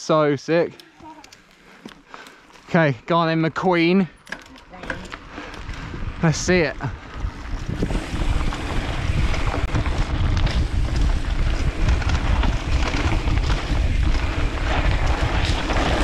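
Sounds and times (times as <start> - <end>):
bike clicks and rattles: 0.6 - 2.7, 3.8 - 16.0
tyres rolling over dirt: 4.9 - 16.0
wind buffeting microphone: 5.0 - 16.0.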